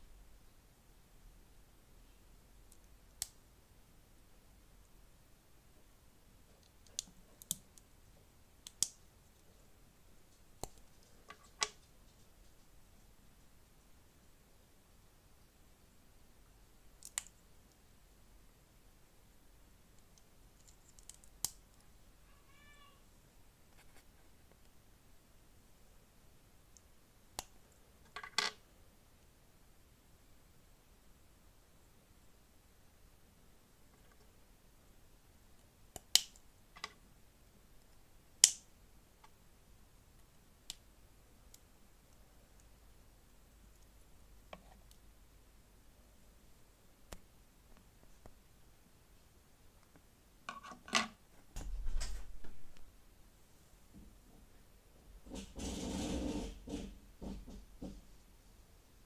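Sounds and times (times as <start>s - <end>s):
faint high-pitched cry: 22.2s - 23.2s
sharp plastic snap: 38.4s - 38.6s.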